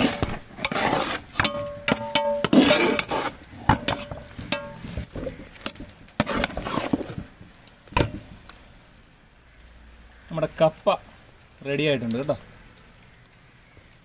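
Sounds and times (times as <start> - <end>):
metal spatula scraping steel pot: 0.0 - 7.2.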